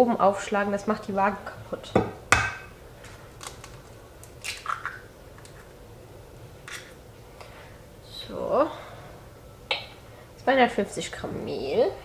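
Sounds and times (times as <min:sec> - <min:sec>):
faint steady hum: 0:00.0 - 0:12.0
eggshell clicks and crackles: 0:03.0 - 0:05.8.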